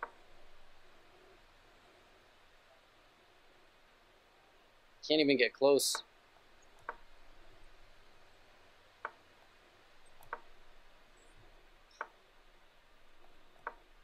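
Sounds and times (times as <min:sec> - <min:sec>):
chess piece move clicks: 0:06.6 - 0:08.0, 0:09.0 - 0:12.2, 0:13.1 - 0:14.0.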